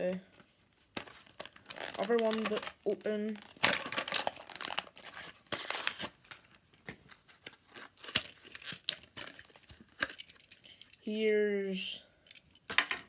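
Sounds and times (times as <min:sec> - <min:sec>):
plastic packaging crackling: 0:00.9 - 0:11.0
packaging ripping: 0:01.0 - 0:10.6.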